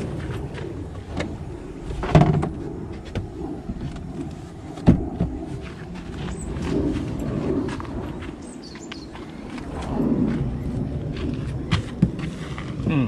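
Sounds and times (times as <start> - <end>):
loud thumps: 1.9 - 4.0.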